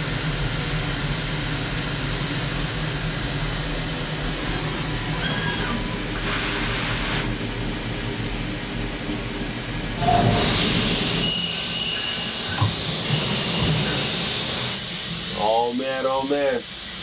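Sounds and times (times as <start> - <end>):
high machine whine: 0.0 - 17.0
milling machine hum: 0.1 - 17.0
spraying coolant hiss: 4.5 - 7.4, 10.0 - 17.0.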